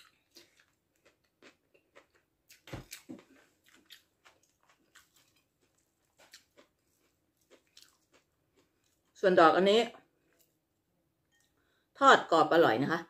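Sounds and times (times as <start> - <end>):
person chewing food: 0.0 - 9.2.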